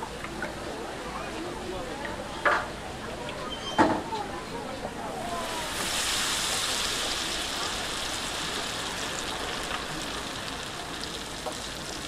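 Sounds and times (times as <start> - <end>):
deep-fryer oil sizzling: 5.1 - 12.0.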